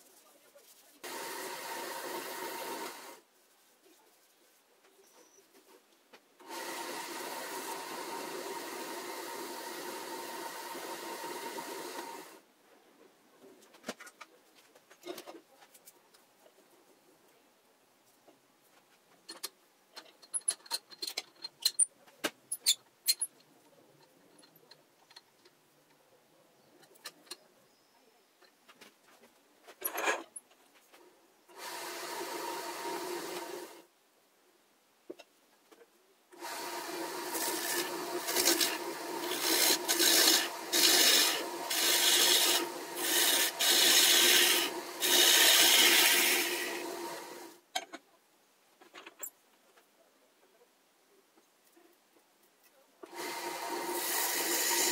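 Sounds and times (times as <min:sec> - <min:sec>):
wood lathe spinning: 0:01.0 - 0:03.2, 0:06.4 - 0:12.4, 0:31.5 - 0:33.8, 0:36.4 - 0:47.6, 0:53.1 - 0:54.9
tool rasping on spinning wood: 0:36.8 - 0:47.4, 0:53.3 - 0:54.9.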